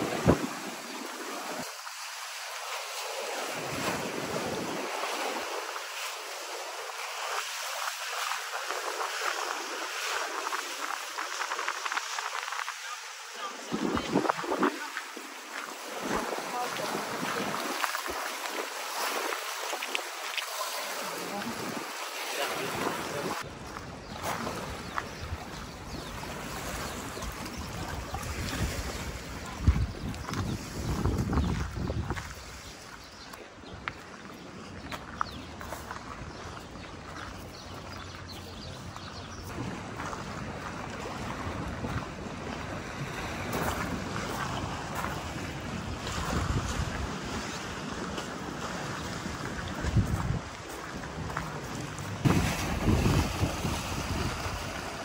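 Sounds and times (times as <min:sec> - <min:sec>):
wind gusts buffeting microphone: 0:00.0 - 0:01.7, 0:08.4 - 0:19.9, 0:21.3 - 0:34.0, 0:34.8 - 0:55.0
steady rain hiss: 0:04.8 - 0:23.5.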